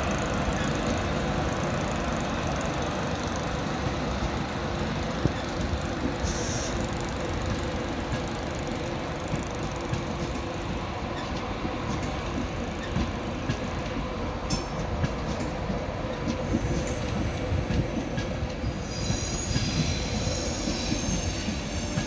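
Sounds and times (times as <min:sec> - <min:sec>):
train wheels rumbling on track: 0:00.0 - 0:22.0
wheels clicking over rail joints: 0:08.0 - 0:22.0.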